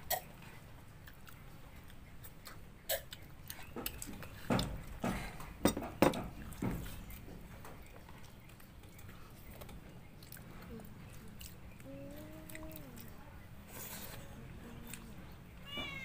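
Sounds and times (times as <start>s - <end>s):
dishes and glass clinking on table: 4.5s - 6.3s.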